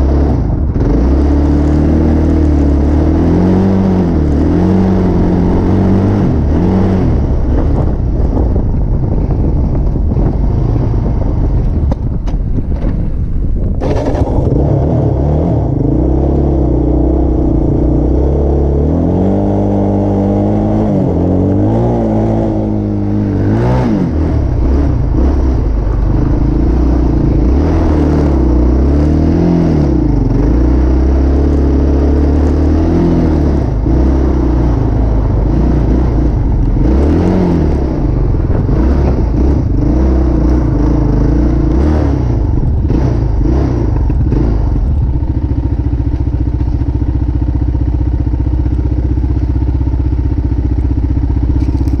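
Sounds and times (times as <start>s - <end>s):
vehicle engine revving and idling: 0.0s - 52.0s
bumps and rattles: 4.5s - 18.5s, 21.4s - 48.7s.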